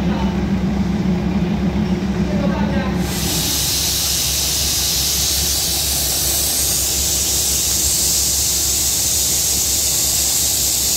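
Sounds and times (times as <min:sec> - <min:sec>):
air venting hiss: 0:03.0 - 0:10.9.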